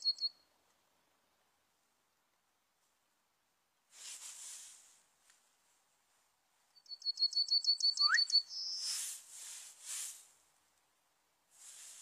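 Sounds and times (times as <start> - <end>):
bird singing: 0.0 - 0.4, 6.8 - 8.9
short hissy bursts: 3.9 - 5.0, 8.8 - 10.4, 11.6 - 12.0.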